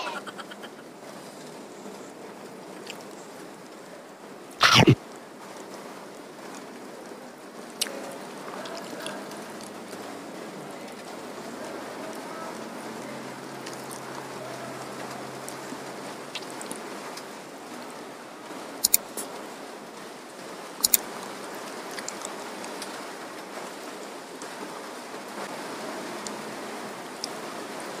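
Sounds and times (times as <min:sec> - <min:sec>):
steady hiss: 0:00.0 - 0:05.0
soft chewing: 0:07.7 - 0:10.1, 0:16.3 - 0:17.3, 0:21.9 - 0:23.0.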